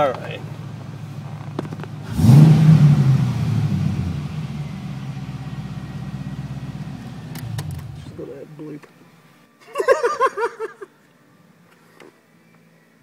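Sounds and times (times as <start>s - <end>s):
car engine revving then idling: 0.0s - 8.3s.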